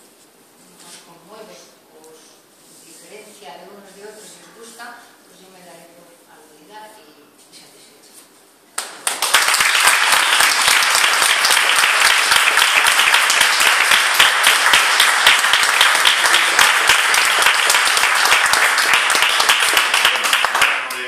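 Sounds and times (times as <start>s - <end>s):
audience applauding: 8.8s - 21.0s.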